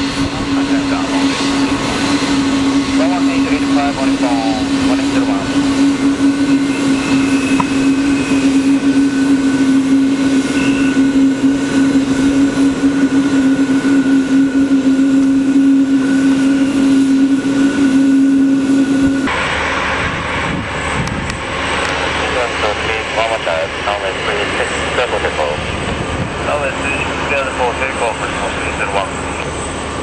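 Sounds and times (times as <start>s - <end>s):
high jet whine: 0.0s - 30.0s
jet engines humming: 0.0s - 30.0s
rushing jet rumble: 0.0s - 30.0s.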